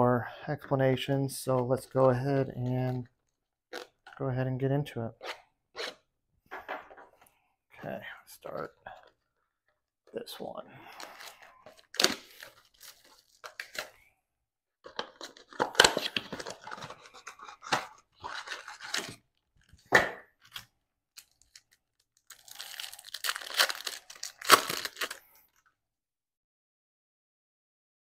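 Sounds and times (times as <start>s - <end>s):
plastic wrap and cardboard tearing: 15.2s - 19.2s, 20.5s - 25.3s
foil pack crinkling and tearing: 20.5s - 25.5s.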